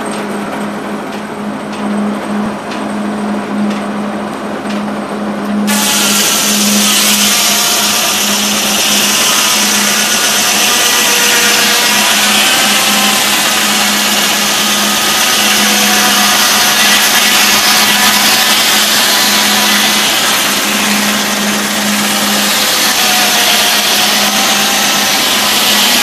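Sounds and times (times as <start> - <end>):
circular saw spinning: 5.2 - 26.0
saw cutting log: 5.6 - 26.0.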